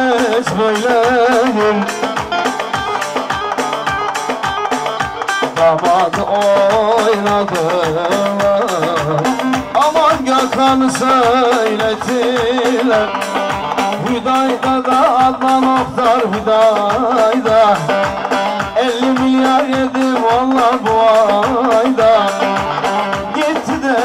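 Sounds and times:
drum beat: 0:00.0 - 0:24.0
ornamented folk melody: 0:00.0 - 0:24.0.

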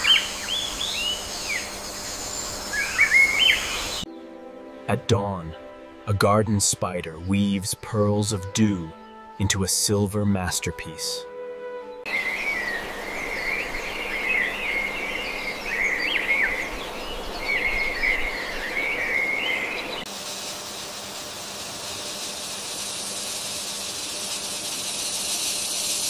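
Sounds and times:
high insect hiss: 0:00.0 - 0:04.1, 0:12.1 - 0:26.0
high twittering chirps: 0:00.0 - 0:04.1, 0:12.1 - 0:26.0.

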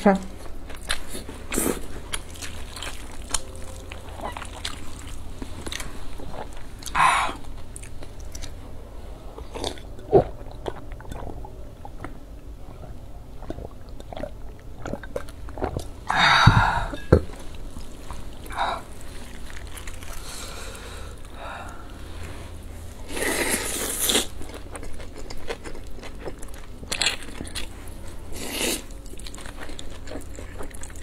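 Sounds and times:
chewing with wet mouth clicks: 0:00.7 - 0:08.6, 0:09.4 - 0:16.0, 0:24.1 - 0:31.0.

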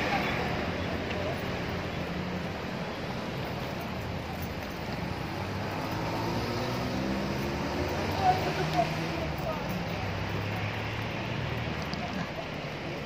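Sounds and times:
road traffic: 0:00.0 - 0:13.0.

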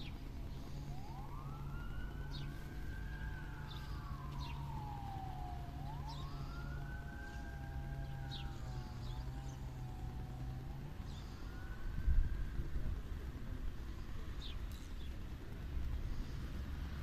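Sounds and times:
siren wailing: 0:00.0 - 0:13.0
steady low hum: 0:00.0 - 0:17.0.

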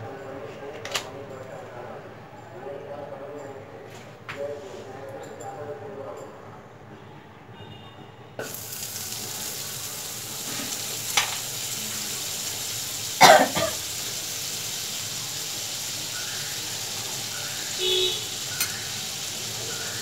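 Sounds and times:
butter sizzling in a pan: 0:08.4 - 0:20.0
person coughing: 0:13.2 - 0:13.8.

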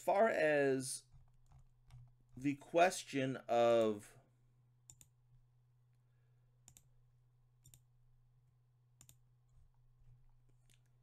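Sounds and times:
computer mouse clicks: 0:04.9 - 0:05.2, 0:06.6 - 0:06.9, 0:07.6 - 0:07.9, 0:09.0 - 0:09.7.

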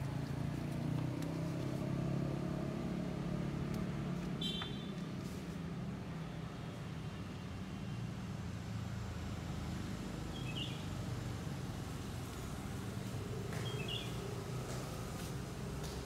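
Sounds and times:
bird chirp: 0:10.3 - 0:10.8, 0:13.6 - 0:14.2.

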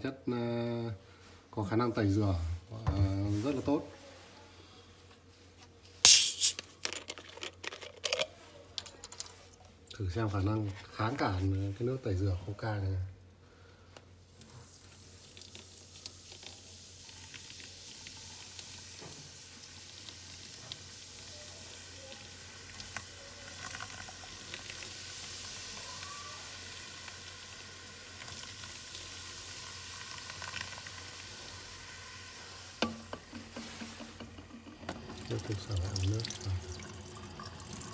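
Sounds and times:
cola fizzing on paper: 0:14.2 - 0:37.9.

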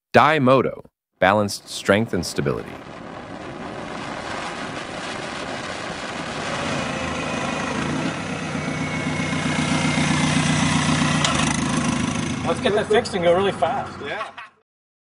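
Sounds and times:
motorcycle diesel engine running: 0:06.6 - 0:14.0.

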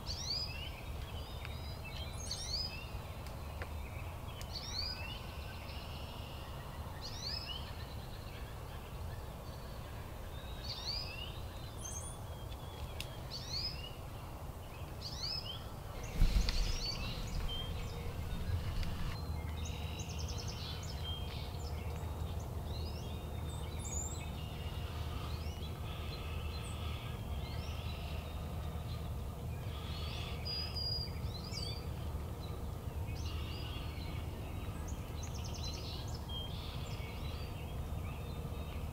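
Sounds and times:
birds chirping: 0:00.0 - 0:38.9
low background rumble: 0:15.1 - 0:38.9.

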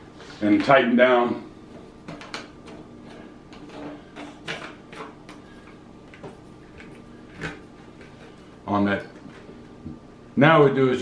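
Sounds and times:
drain nut clicking and scraping: 0:01.7 - 0:09.6.

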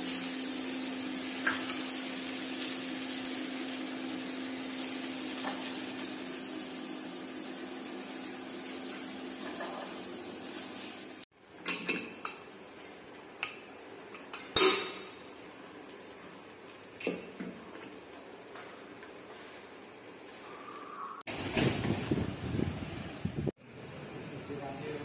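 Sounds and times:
steel kitchen utensils clinking: 0:14.1 - 0:15.2.

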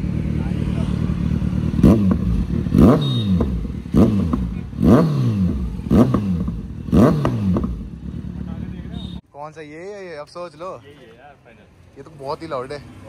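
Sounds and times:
motorcycle engine revving: 0:00.0 - 0:09.2.

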